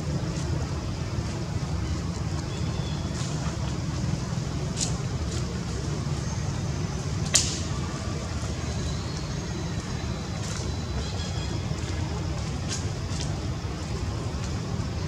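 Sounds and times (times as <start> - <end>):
sharp loud click: 7.3 - 7.7.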